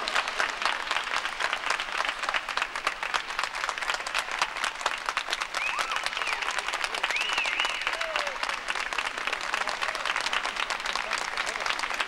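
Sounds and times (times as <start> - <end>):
audience applauding: 0.0 - 12.0
high cheer: 5.3 - 11.7.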